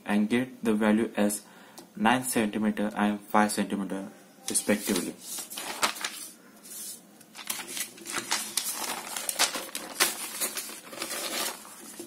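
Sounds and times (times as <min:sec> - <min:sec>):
paper sheets rustling: 0:04.5 - 0:12.0.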